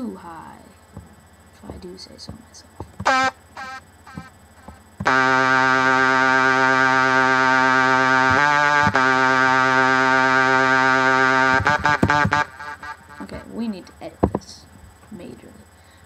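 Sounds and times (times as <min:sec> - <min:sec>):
buzzy synthesizer lead notes: 0:02.8 - 0:13.5.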